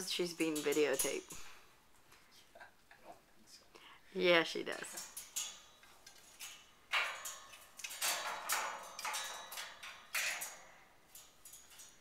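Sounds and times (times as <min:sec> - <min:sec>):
metal bell toy clanking: 0:00.2 - 0:01.6, 0:04.8 - 0:12.0.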